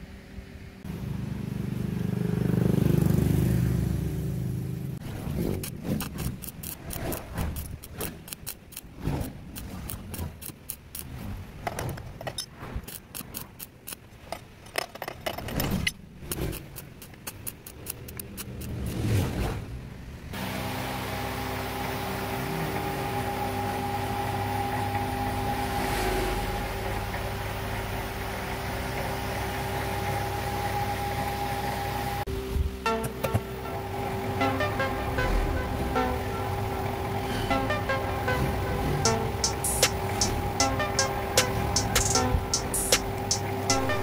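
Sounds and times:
welding arc crackling: 5.4s - 11.1s
loud electrical hum: 20.0s - 44.0s.

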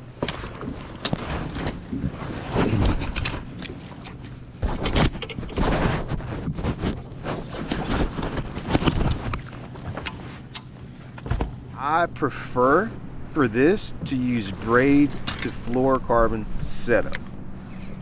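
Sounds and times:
knocks and scrapes of handling: 0.2s - 10.4s, 16.4s - 18.0s
faint steady hum: 8.7s - 18.0s.

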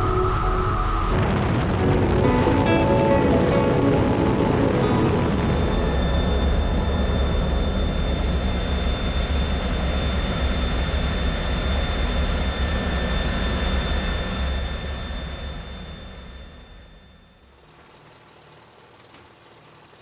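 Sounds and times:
jet engine rumble and whine: 0.0s - 20.0s.

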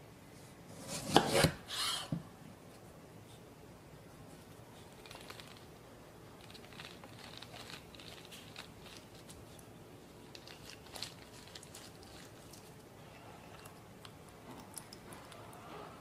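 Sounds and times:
lemon rind crackling: 4.8s - 12.9s
juice dripping: 5.0s - 15.6s.

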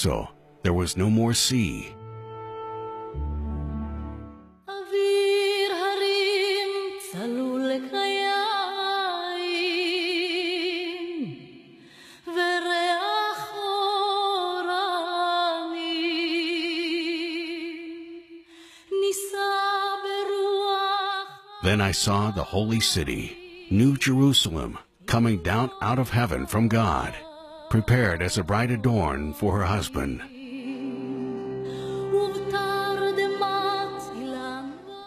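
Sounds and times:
woman's wordless singing with vibrato: 4.7s - 21.6s, 23.3s - 23.7s, 26.3s - 27.7s, 30.3s - 35.0s.

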